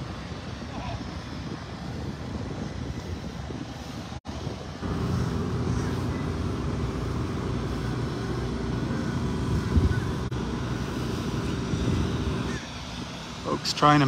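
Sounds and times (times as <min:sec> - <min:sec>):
wind rumbling on microphone: 0:00.0 - 0:14.0
engine drone: 0:04.6 - 0:14.0.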